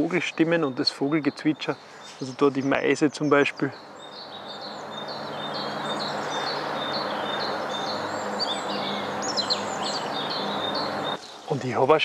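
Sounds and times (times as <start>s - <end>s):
small birds chirping: 0.0s - 12.0s
steady rushing background noise: 3.8s - 12.0s.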